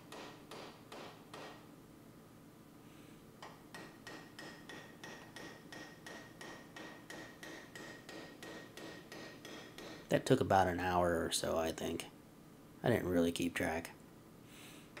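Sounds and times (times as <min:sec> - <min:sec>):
hammer striking chisel on metal: 0:00.0 - 0:01.6, 0:03.4 - 0:10.1.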